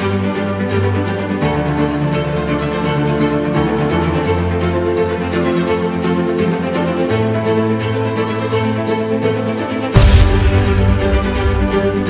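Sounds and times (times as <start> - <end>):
sustained string music: 0.0 - 12.0
loud deep hit: 10.0 - 12.0.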